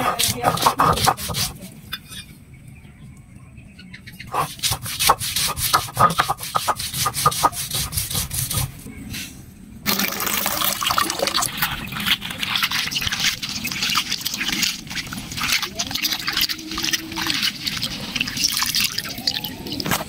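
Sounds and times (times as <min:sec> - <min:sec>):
stone roller crushing garlic: 0:00.0 - 0:02.3, 0:04.3 - 0:08.8, 0:10.0 - 0:20.0
water pouring into pot: 0:09.9 - 0:20.0.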